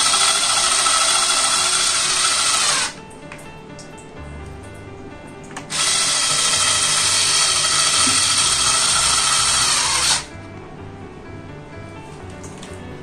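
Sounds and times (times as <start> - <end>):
handheld electric tool whirring: 0.0 - 3.0, 5.7 - 10.3.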